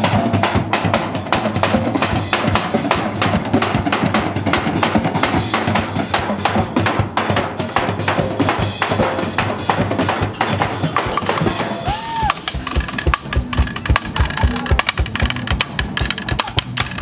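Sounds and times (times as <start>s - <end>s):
bass drums and drum kit: 0.0s - 17.0s
drumsticks beating wooden stools: 11.8s - 17.0s.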